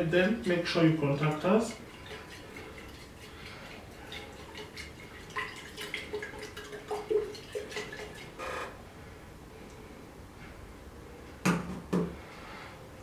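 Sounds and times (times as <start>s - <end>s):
liquid sloshing in glass flask: 0.8s - 8.4s
small splashes: 1.2s - 8.4s.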